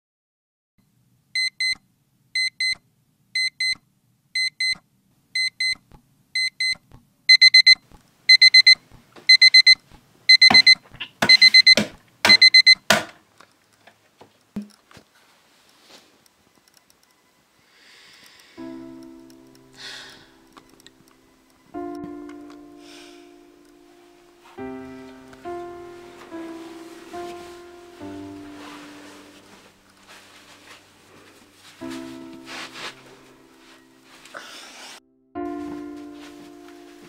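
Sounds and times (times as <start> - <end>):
alarm clock beeping: 5.4 - 5.8, 6.4 - 12.8.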